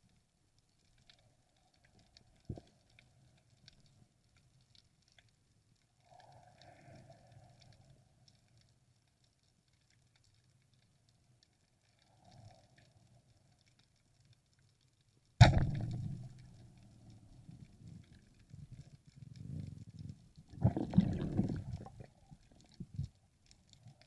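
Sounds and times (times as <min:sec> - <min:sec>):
faint underwater clicks: 0:00.0 - 0:24.0
speargun firing underwater: 0:15.4 - 0:16.3.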